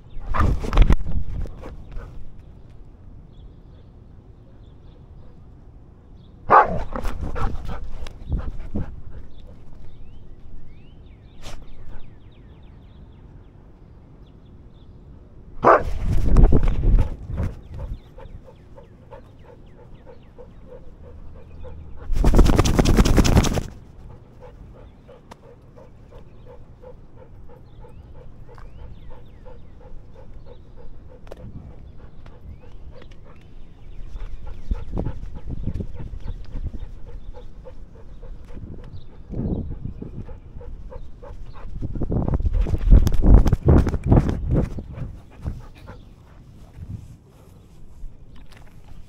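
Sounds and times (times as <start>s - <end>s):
dog barking: 6.5s - 7.5s, 15.6s - 15.9s
dog panting: 7.2s - 10.2s, 17.0s - 22.7s, 23.5s - 42.8s, 44.6s - 46.8s
dog shaking its head: 22.1s - 23.8s.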